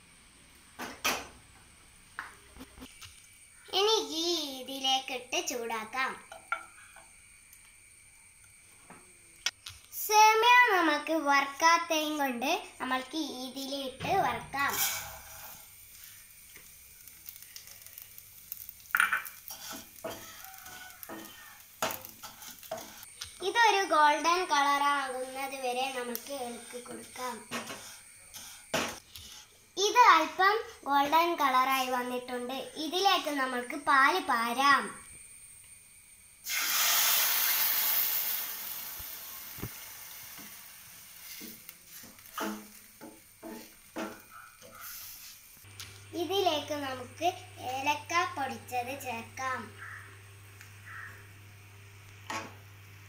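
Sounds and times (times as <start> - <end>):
faint sizzle: 0.0 - 53.0
ladle scraping pan: 14.2 - 15.7.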